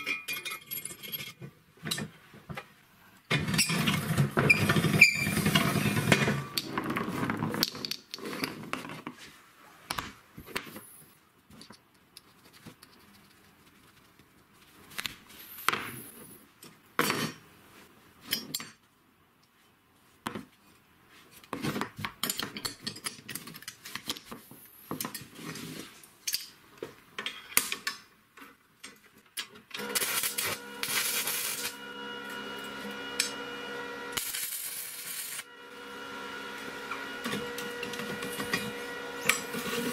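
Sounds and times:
steel parts clinking and knocking: 0.0s - 2.2s
welding arc crackling: 29.8s - 35.6s.

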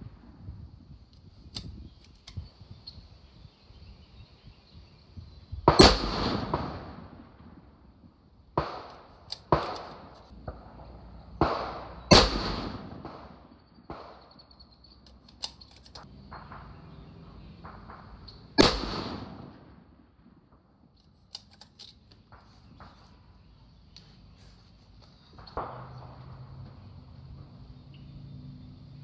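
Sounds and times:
loud rifle shots: 5.6s - 7.6s, 8.6s - 14.3s, 16.3s - 20.0s
quieter gunshots: 5.6s - 14.4s, 16.0s - 20.8s, 25.3s - 26.9s.

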